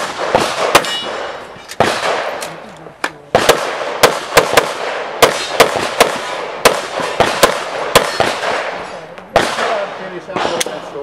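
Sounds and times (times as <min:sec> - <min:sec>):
pistol shots with echo: 0:00.0 - 0:02.6, 0:03.3 - 0:11.0.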